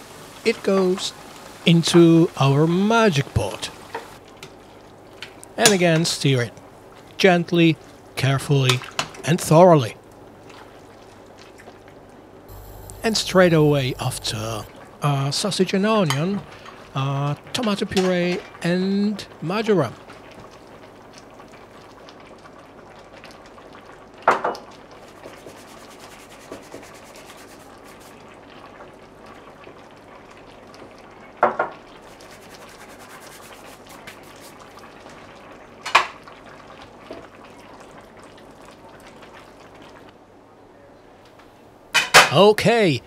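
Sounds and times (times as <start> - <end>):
faint steady hiss: 0.0 - 4.2, 12.5 - 20.0.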